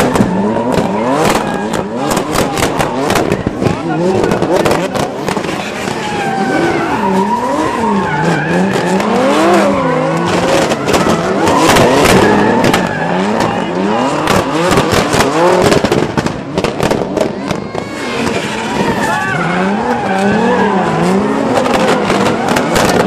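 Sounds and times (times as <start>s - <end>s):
exhaust crackles and pops: 0.0s - 6.4s, 10.0s - 23.0s
car engines revving: 0.0s - 23.0s
tyres screeching: 5.4s - 15.6s, 17.6s - 23.0s.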